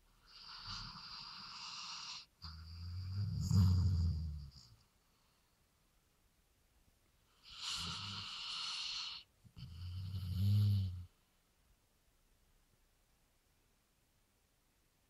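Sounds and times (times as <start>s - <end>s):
dog snoring: 0.2s - 4.8s, 7.4s - 11.2s.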